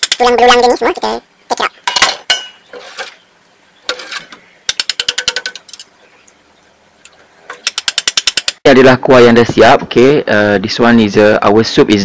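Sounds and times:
wire strainer scraping in pot: 2.7s - 3.2s, 3.9s - 4.3s
wire strainer clicking: 4.7s - 5.9s, 7.0s - 8.6s.

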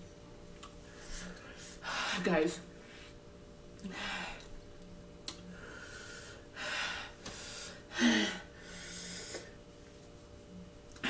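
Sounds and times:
woman gasping and breathing hard: 5.8s - 9.4s.

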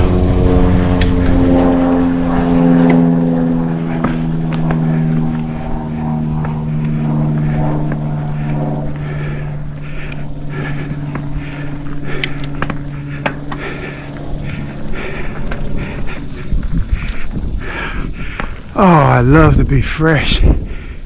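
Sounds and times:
bike freehub buzzing: 0.0s - 21.0s
bike clattering over rough trail: 2.6s - 19.0s
tyre noise: 3.8s - 19.3s.

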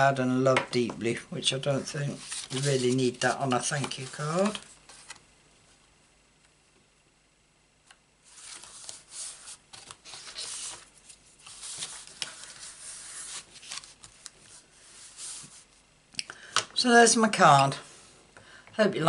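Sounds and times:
card stock rustling: 1.8s - 5.2s, 8.3s - 15.7s.

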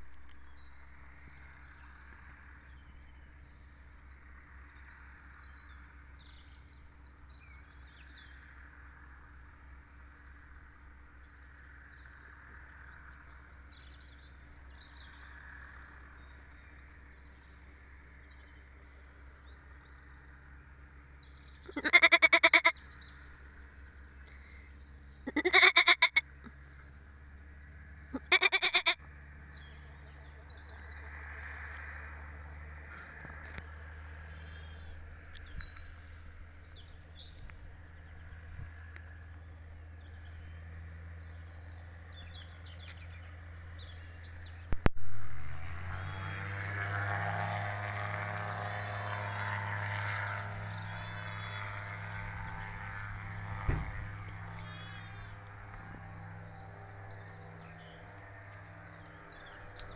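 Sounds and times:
sheep bleating: 21.7s - 22.7s, 25.2s - 26.2s, 28.1s - 29.0s, 50.8s - 51.7s, 54.5s - 55.4s.

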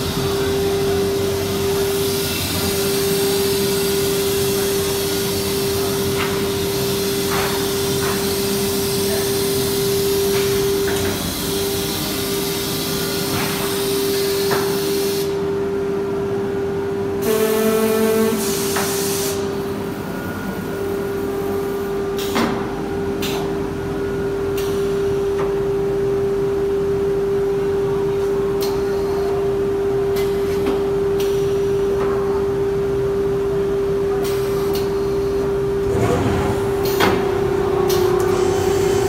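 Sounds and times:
cnc router whine: 35.2s - 39.0s.

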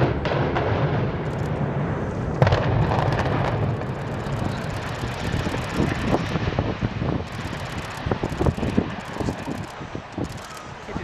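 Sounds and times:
explosive charge bang: 0.0s - 3.9s
building collapsing rumble: 0.0s - 10.3s.

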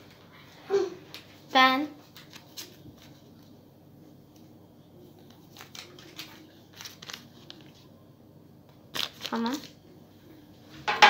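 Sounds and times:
paper rustling and crinkling: 1.1s - 3.6s, 4.3s - 8.0s, 8.9s - 9.8s.

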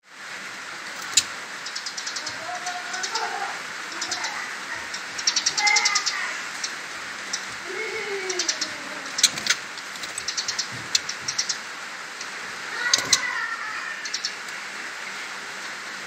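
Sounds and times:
bird clicks and ticks: 0.9s - 3.3s, 3.9s - 13.3s, 14.0s - 14.6s
bird warble: 0.9s - 14.5s.

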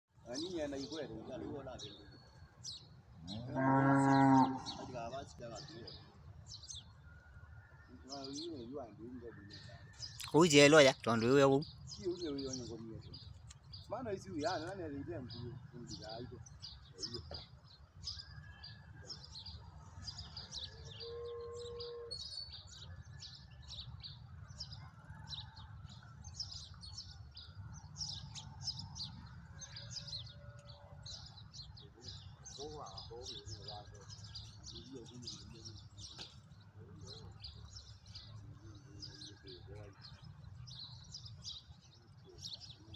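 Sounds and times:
small birds chirping: 0.1s - 42.9s
cow mooing: 3.2s - 4.9s.

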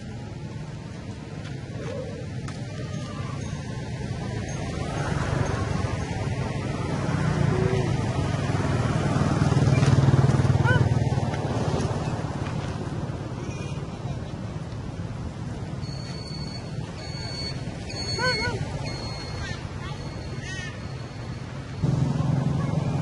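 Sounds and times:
motor vehicle engine passing: 4.2s - 13.5s, 21.5s - 23.0s
brief high squeak: 15.8s - 21.2s.

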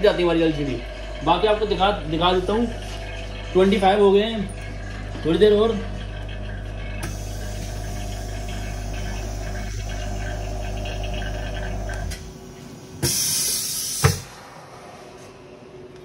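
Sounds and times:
vacuum pump humming: 0.0s - 14.7s
loud hiss of air: 13.0s - 14.4s.

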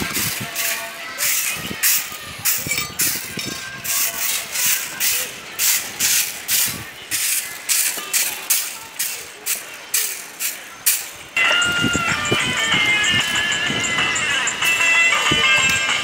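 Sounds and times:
stiff broom sweeping tiles: 0.0s - 11.2s.

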